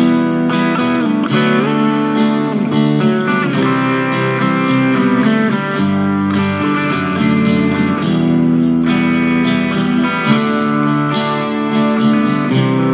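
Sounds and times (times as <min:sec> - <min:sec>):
plucked melody over sustained chords: 0:00.0 - 0:12.9.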